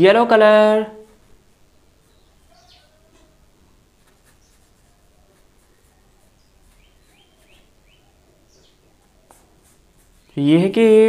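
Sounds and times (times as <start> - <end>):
paintbrush stroking paper: 3.9 - 10.5.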